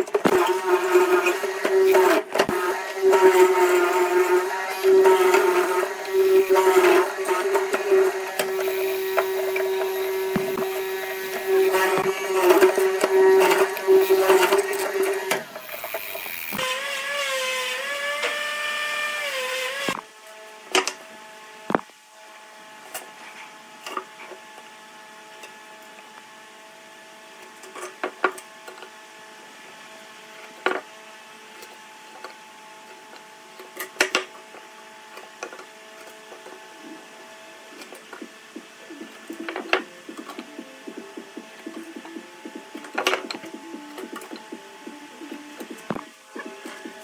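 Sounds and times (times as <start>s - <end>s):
faint machine hum: 0.0s - 47.0s
power tool motor running: 0.2s - 20.0s
knocks and clicks: 38.1s - 47.0s.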